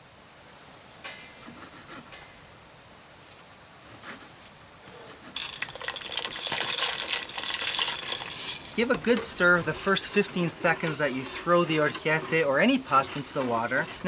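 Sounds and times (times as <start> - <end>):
dried pasta pouring into pot: 5.4 - 14.0.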